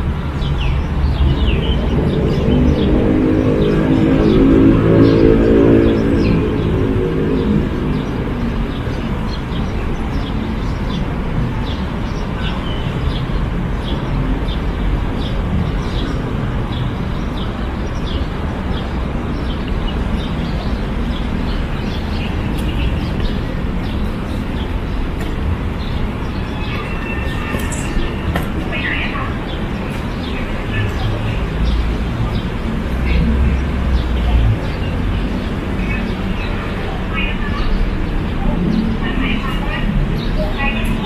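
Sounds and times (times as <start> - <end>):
low rumble of city traffic: 0.0 - 41.0
small birds chirping: 5.0 - 41.0.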